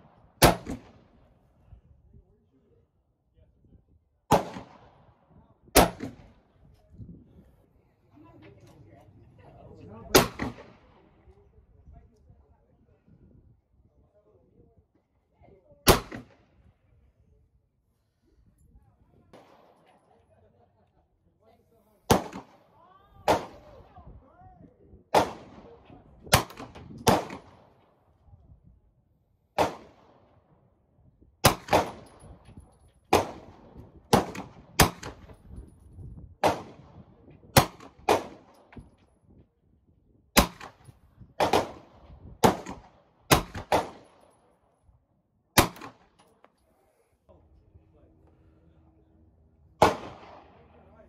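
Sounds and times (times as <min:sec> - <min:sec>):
rifle shots with echo: 0:00.0 - 0:01.3, 0:04.3 - 0:06.5, 0:10.1 - 0:11.2, 0:15.9 - 0:16.6, 0:19.3 - 0:20.0, 0:22.1 - 0:23.9, 0:25.1 - 0:27.9, 0:29.6 - 0:30.4, 0:31.4 - 0:32.4, 0:33.1 - 0:35.4, 0:36.4 - 0:38.8, 0:40.4 - 0:44.5, 0:45.6 - 0:46.2, 0:49.8 - 0:50.8.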